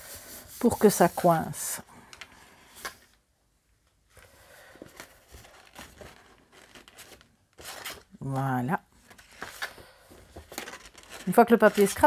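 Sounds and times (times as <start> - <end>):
paper and card rustling: 4.8 - 12.0.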